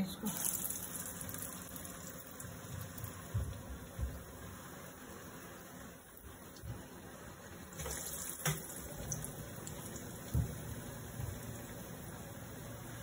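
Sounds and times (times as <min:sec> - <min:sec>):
food deep-frying in oil: 0:00.0 - 0:13.0.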